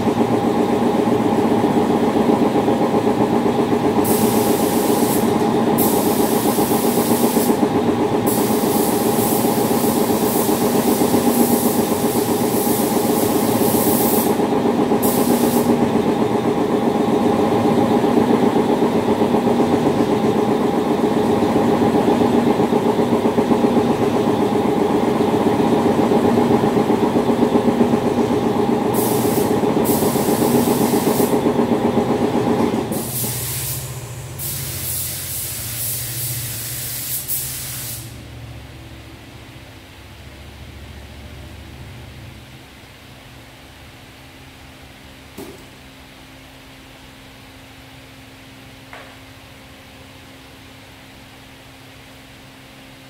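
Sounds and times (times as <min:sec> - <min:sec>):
steady machine hum: 0:00.0 - 0:36.6
spray gun hissing: 0:04.0 - 0:07.6, 0:08.2 - 0:14.4, 0:15.0 - 0:15.8, 0:29.0 - 0:31.4, 0:32.9 - 0:38.2.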